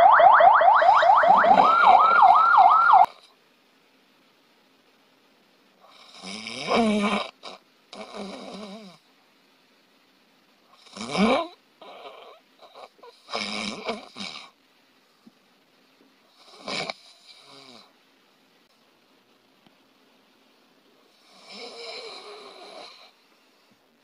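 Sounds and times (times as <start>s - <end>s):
person snoring loudly: 5.8s - 9.0s, 10.7s - 14.6s, 16.3s - 17.9s, 21.1s - 23.2s.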